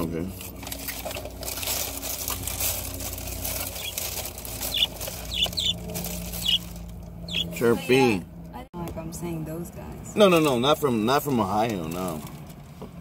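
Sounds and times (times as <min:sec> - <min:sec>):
small birds chirping: 0:03.2 - 0:08.2.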